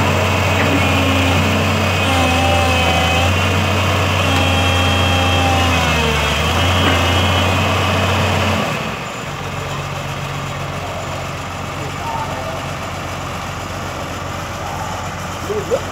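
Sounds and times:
excavator diesel engine: 0:00.0 - 0:15.9.

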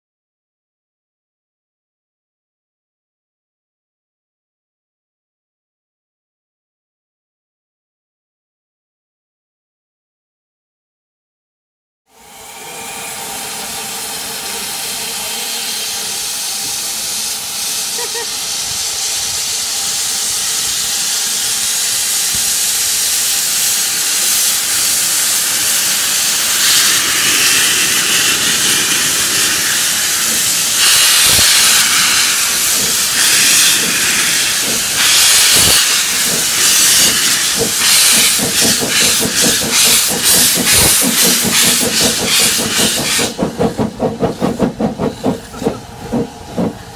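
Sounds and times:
steam locomotive hissing steam: 0:12.1 - 0:46.9
steam exhaust beats: 0:12.2 - 0:46.9.

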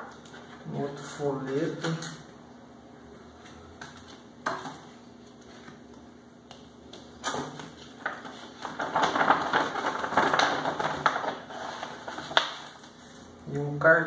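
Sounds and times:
glossy paper rustling: 0:03.9 - 0:13.3.

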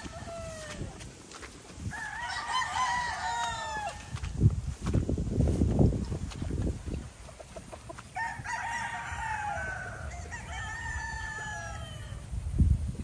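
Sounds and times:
roosters crowing: 0:00.0 - 0:04.4, 0:07.1 - 0:12.4.

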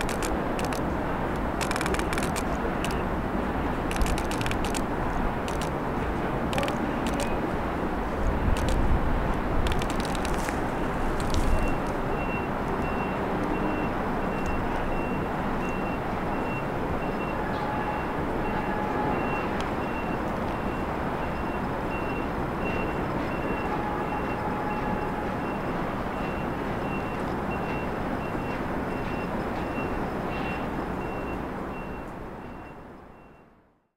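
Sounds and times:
city traffic noise: 0:00.0 - 0:33.9
reversing alarm beeping: 0:11.6 - 0:33.6.

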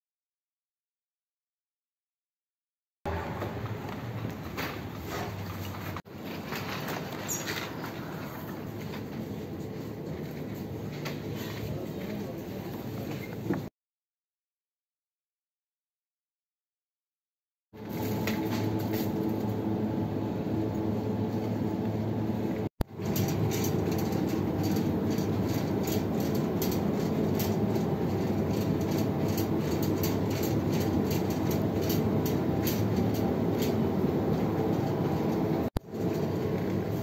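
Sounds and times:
shopping trolley rattling on tiles: 0:03.1 - 0:13.4, 0:22.9 - 0:37.0.

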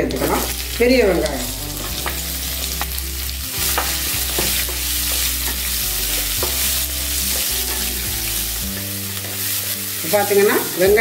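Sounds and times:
onions sizzling in hot oil: 0:00.0 - 0:11.0
spatula scraping and knocking pan: 0:03.6 - 0:10.8.

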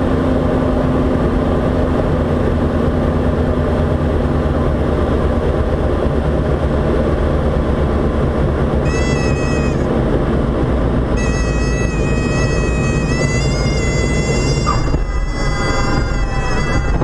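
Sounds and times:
aircraft engine and propeller droning: 0:00.0 - 0:17.0
high buzzing warning tone: 0:08.8 - 0:10.2, 0:11.1 - 0:17.0.

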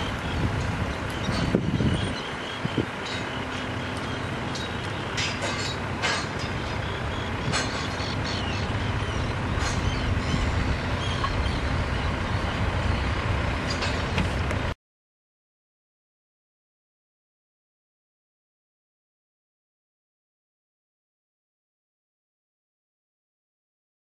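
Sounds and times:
diesel machinery droning: 0:00.0 - 0:14.8
metallic clanks and knocks: 0:03.0 - 0:06.8, 0:07.4 - 0:08.2, 0:13.6 - 0:14.6.

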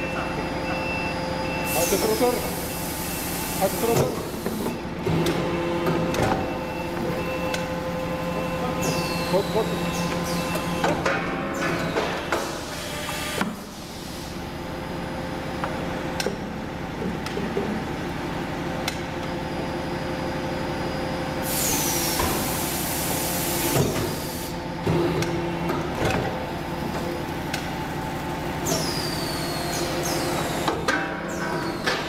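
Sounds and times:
loud air hiss: 0:01.7 - 0:04.5, 0:21.4 - 0:24.6.

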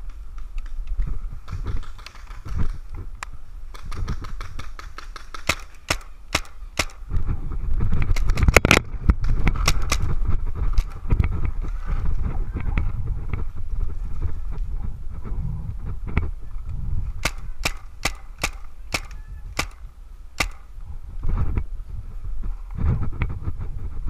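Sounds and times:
wind rumble on microphone: 0:00.0 - 0:05.4, 0:06.0 - 0:24.0
paintball markers popping: 0:03.8 - 0:07.2, 0:17.2 - 0:20.7.

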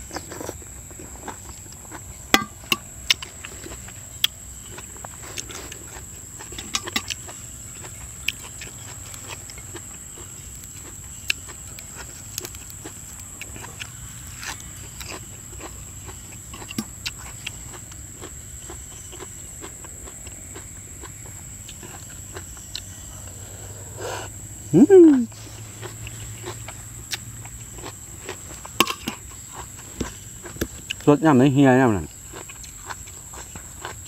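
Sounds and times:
man chewing and lip-smacking: 0:00.0 - 0:31.1, 0:32.1 - 0:34.0
faint high whine: 0:00.0 - 0:32.2.

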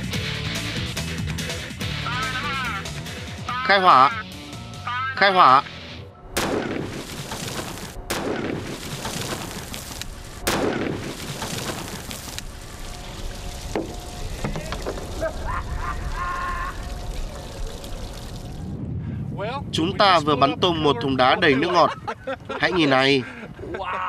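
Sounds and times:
water disruptor blast: 0:06.4 - 0:18.8
rush of water and debris: 0:06.8 - 0:18.8.

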